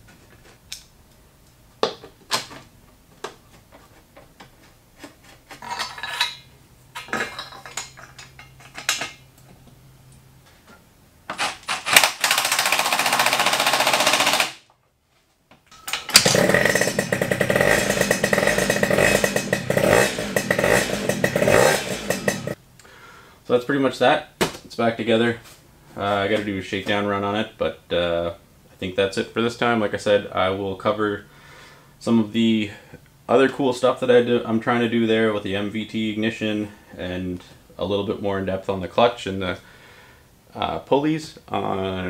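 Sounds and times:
tools clicking and knocking: 7.0s - 9.2s
two-stroke engine running: 12.3s - 14.5s, 16.2s - 22.6s.

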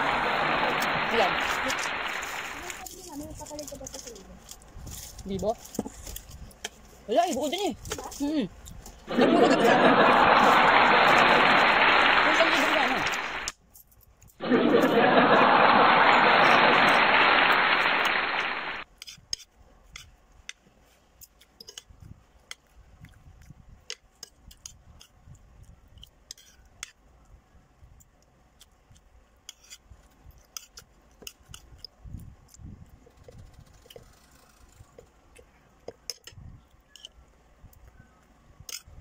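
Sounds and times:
loud rushing noise: 0.0s - 2.8s, 9.1s - 13.5s, 14.4s - 18.8s
faint chewing: 20.8s - 27.0s.

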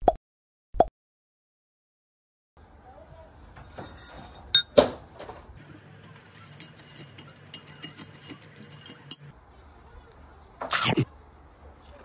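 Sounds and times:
spoon clinking in glass mug: 3.8s - 4.8s, 6.2s - 9.3s.

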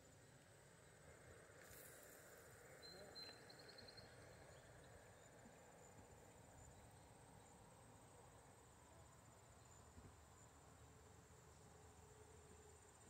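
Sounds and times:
faint low outdoor rumble: 0.0s - 13.0s.

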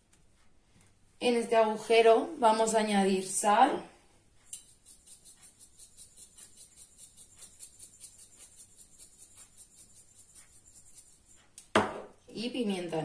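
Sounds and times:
salt sprinkling rustle: 4.6s - 11.4s.

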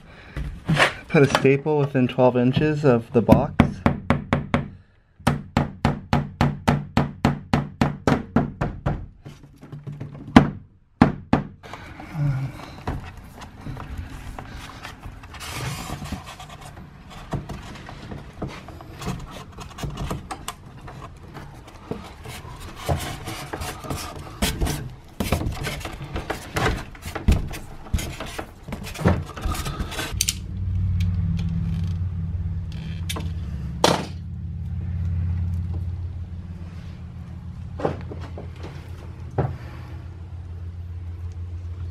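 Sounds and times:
cable clicks and rustling: 11.6s - 33.4s
low steady rumble: 11.6s - 41.9s.

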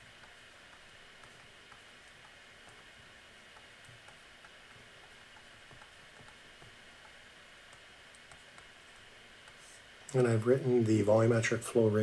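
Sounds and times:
low steady hiss: 0.0s - 12.0s
stylus tapping on tablet screen: 0.1s - 2.9s, 3.5s - 9.6s.

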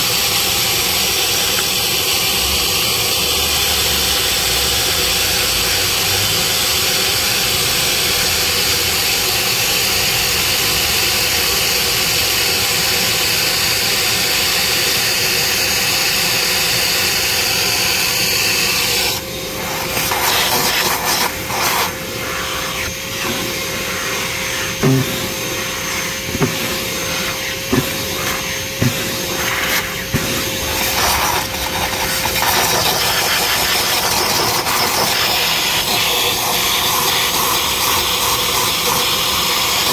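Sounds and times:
machine hissing: 16.7s - 39.1s.

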